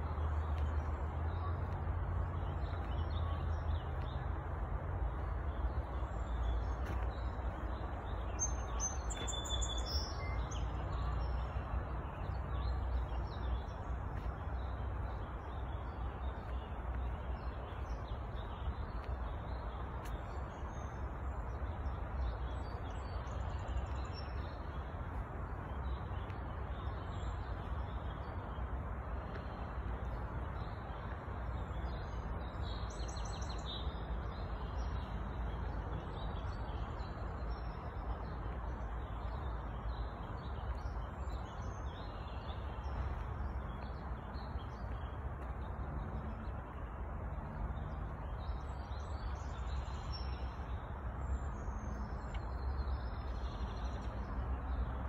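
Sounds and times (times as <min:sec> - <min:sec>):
birds chirping: 0:05.0 - 0:30.8.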